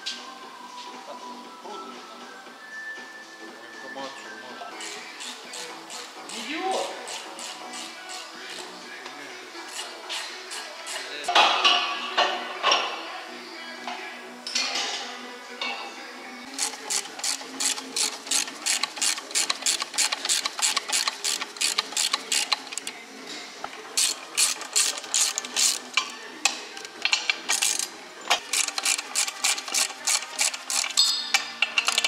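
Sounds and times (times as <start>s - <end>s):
ratchet wrench clicking: 4.8s - 8.7s, 9.7s - 11.0s, 16.5s - 22.9s, 24.0s - 32.0s.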